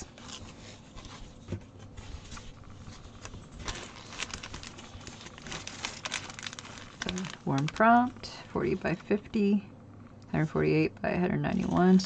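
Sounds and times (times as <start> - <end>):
canvas rustling: 0.0 - 9.0.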